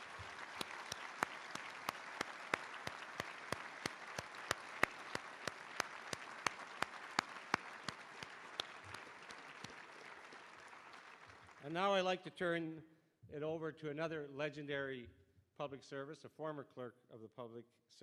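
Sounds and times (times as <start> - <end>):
nearby claps: 0.0 - 11.8
audience applauding: 0.0 - 11.9.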